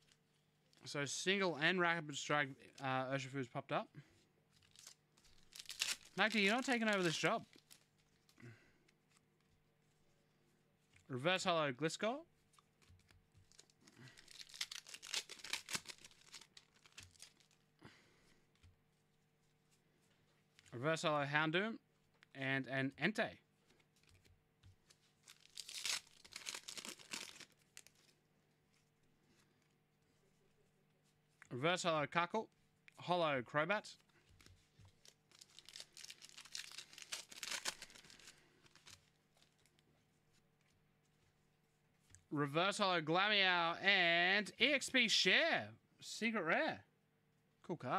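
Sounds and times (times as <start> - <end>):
foil wrapper tearing and crinkling: 4.6 - 8.4, 13.4 - 17.6, 25.2 - 28.0, 35.0 - 39.7.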